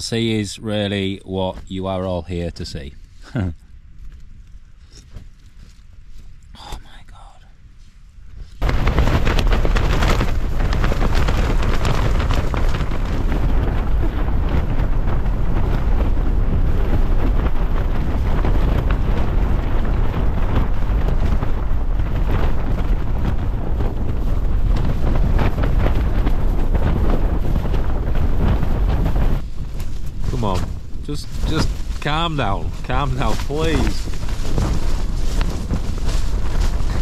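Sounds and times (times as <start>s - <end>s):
strong wind gusts: 8.1s - 37.0s
tent fabric flapping: 8.4s - 37.0s.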